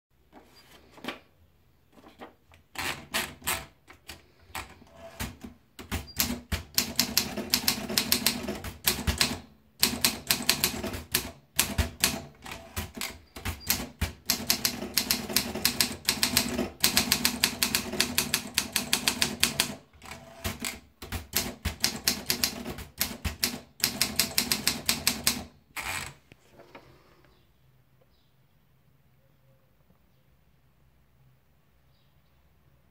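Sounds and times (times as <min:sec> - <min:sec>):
typewriter paper feed clicks: 0:02.7 - 0:26.2.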